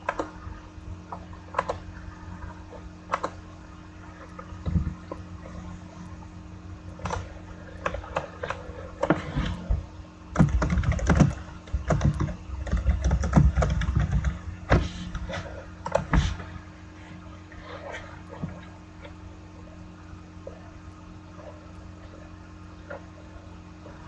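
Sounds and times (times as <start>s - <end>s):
steady low hum: 0.0s - 24.0s
irregular clicks and knocks: 7.0s - 16.3s.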